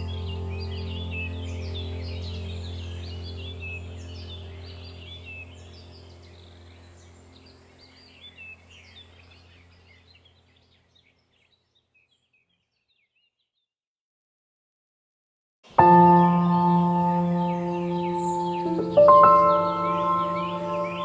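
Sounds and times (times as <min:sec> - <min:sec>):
low steady drone: 0:00.0 - 0:09.2, 0:15.8 - 0:21.0
birdsong chirps: 0:00.0 - 0:13.7, 0:15.7 - 0:21.0.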